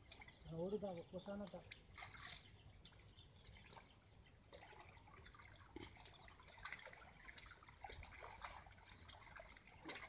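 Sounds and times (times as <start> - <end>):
splashing in muddy water: 0.0 - 10.0.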